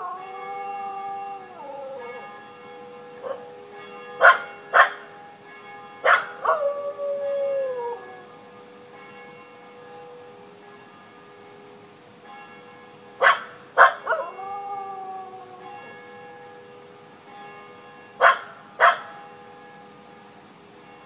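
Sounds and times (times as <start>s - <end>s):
dog howling: 0.0s - 2.2s, 6.1s - 8.2s, 13.2s - 15.7s
church bells ringing: 0.0s - 21.0s
dog barking: 3.2s - 3.4s, 4.2s - 5.0s, 6.0s - 6.6s, 13.2s - 14.4s, 18.2s - 19.1s.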